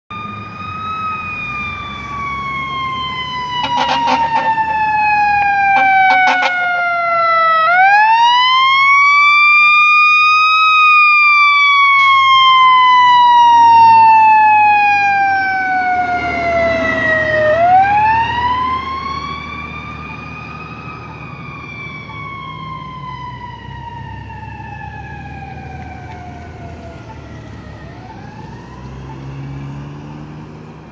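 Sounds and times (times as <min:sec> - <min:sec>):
fire engine siren wailing: 0:00.1 - 0:30.9
truck engine passing: 0:00.1 - 0:30.9
short horn blasts: 0:03.6 - 0:04.6, 0:05.8 - 0:06.7.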